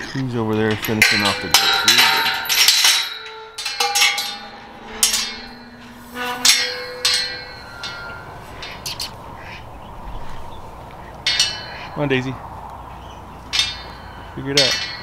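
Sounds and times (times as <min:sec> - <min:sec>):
metal feed bowl clanking: 0:00.0 - 0:09.6, 0:11.2 - 0:12.0.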